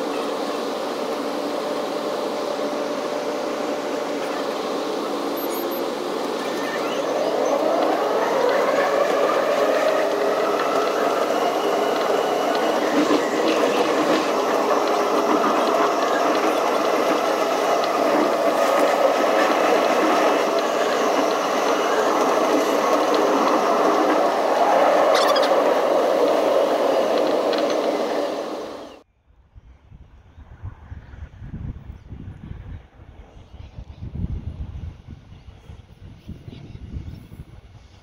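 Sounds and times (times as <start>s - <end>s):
train motor whine: 0.0s - 29.0s
train running noise: 0.0s - 29.1s, 32.2s - 38.0s.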